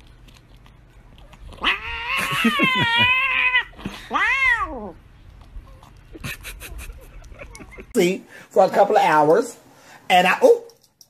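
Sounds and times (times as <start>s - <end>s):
cat yowling: 1.6s - 5.0s.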